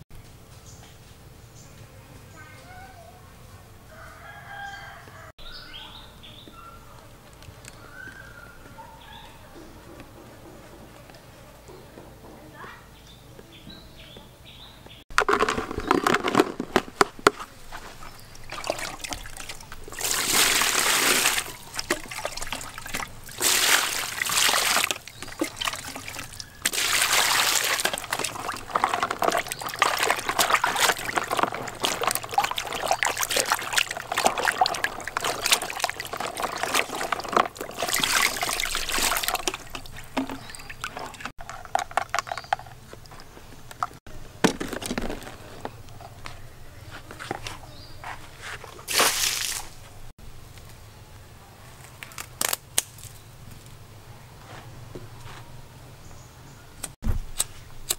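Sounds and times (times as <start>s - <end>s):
water splashing in plastic basin: 15.1s - 45.8s, 48.9s - 49.8s
water gushing: 17.7s - 41.4s.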